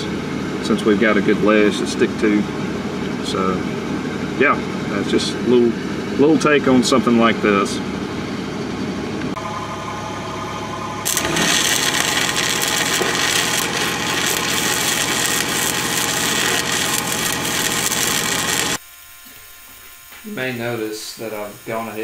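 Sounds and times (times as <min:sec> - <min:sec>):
machine hum: 0:00.0 - 0:22.0
welding arc crackling hiss: 0:11.0 - 0:22.0.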